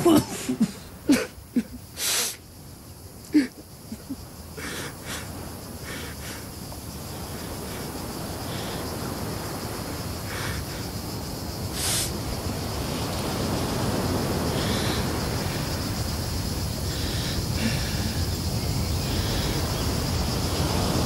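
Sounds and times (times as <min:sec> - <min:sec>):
man sobbing: 0:00.0 - 0:01.9, 0:03.3 - 0:04.9.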